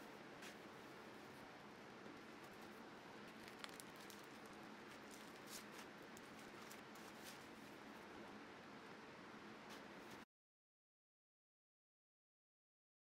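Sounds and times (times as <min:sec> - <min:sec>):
plastic film peeling crackle: 0:02.4 - 0:07.2.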